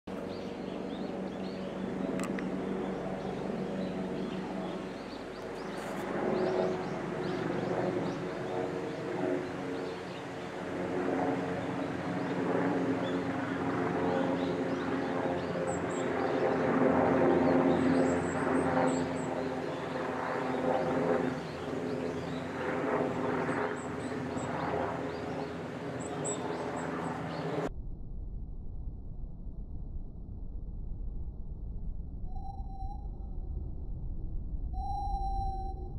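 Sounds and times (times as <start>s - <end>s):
steady engine drone: 0.1s - 27.8s
faint high chirps: 32.3s - 33.5s, 34.7s - 35.9s.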